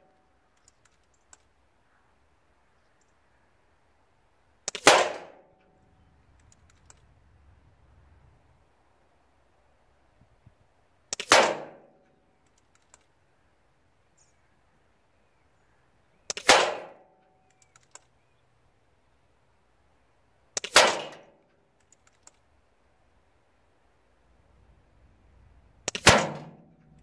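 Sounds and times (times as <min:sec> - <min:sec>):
quiet clicks: 0:00.0 - 0:01.6, 0:05.6 - 0:07.2, 0:12.0 - 0:13.2, 0:17.2 - 0:18.4, 0:21.4 - 0:22.5
air rifle shots: 0:04.7 - 0:05.4, 0:11.1 - 0:11.9, 0:16.3 - 0:17.0, 0:20.6 - 0:21.3, 0:25.8 - 0:26.7.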